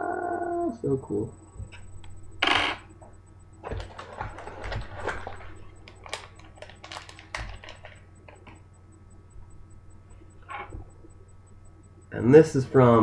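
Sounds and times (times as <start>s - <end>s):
packaging crinkling and clicking: 3.7s - 8.6s.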